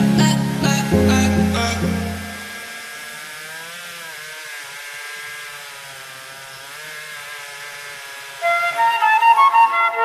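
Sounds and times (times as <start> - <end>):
chainsaw engine running: 0.0 - 9.8.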